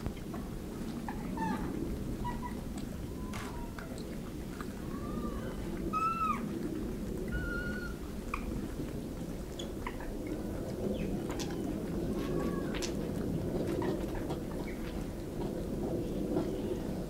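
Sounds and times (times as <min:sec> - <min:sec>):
low steady background rumble: 0:00.0 - 0:17.0
monkeys giving soft coo calls: 0:04.8 - 0:06.4, 0:07.3 - 0:08.5.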